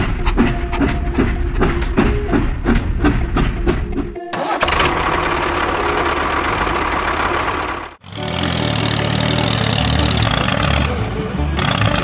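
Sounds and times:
tractor engine running: 0.0 - 12.0
lower-pitched engine: 4.4 - 12.0.

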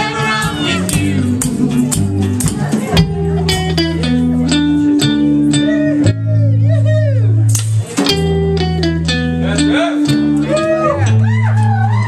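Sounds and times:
electric bass low notes: 0.0 - 12.0
electric guitar pitch-bending lines: 0.0 - 12.0.

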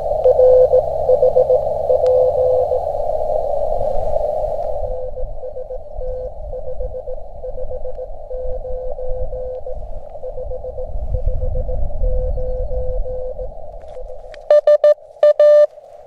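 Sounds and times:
morse code tone: 0.2 - 2.8, 5.1 - 13.5, 14.5 - 15.7.

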